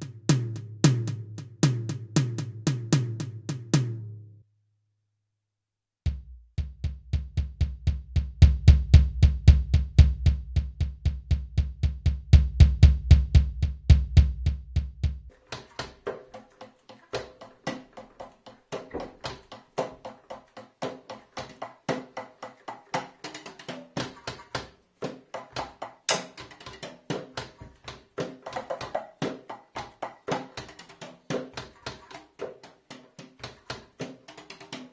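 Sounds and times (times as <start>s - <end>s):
drumsticks tapping mesh pads: 15.3s - 34.9s.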